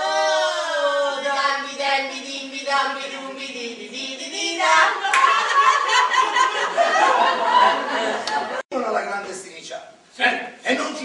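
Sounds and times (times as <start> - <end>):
people laughing: 5.0 - 8.6.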